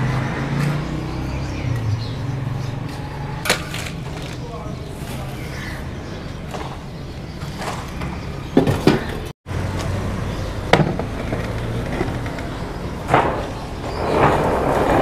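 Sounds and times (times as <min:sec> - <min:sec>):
sharp knocks and clatters: 0:10.7 - 0:15.0.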